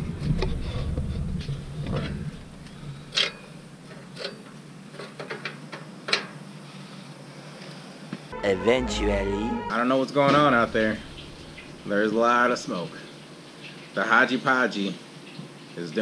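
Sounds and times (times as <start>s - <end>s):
low steady hum: 8.3s - 13.1s.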